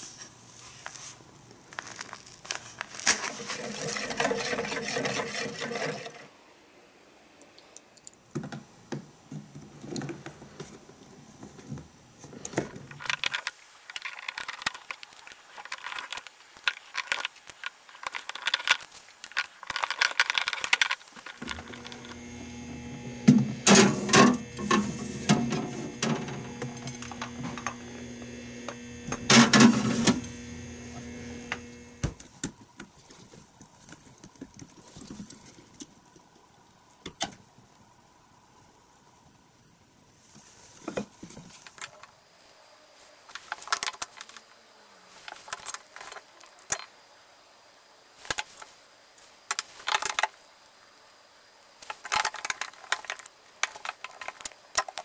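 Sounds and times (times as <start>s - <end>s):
rustling and crinkling: 0.0s - 4.5s, 9.4s - 36.2s, 40.2s - 46.9s, 48.2s - 50.5s, 51.8s - 55.0s
refrigerator humming: 21.4s - 32.2s.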